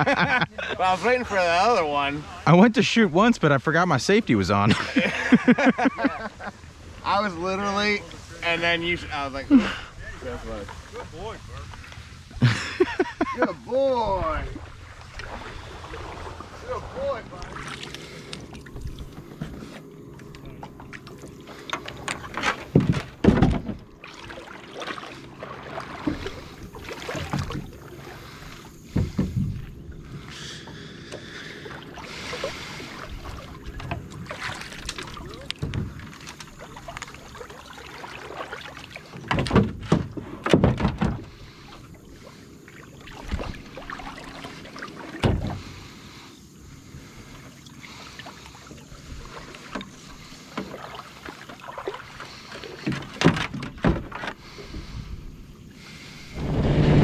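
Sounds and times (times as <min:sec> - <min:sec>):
water lapping against boat hull: 0:04.2 - 0:57.0
knocks and bumps on hull: 0:21.7 - 0:31.8, 0:32.4 - 0:37.2, 0:38.1 - 0:41.5, 0:43.2 - 0:45.8, 0:52.6 - 0:54.4.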